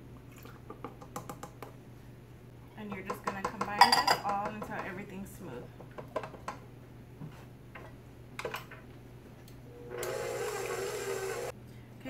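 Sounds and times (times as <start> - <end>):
stand mixer motor whine: 9.8 - 11.5.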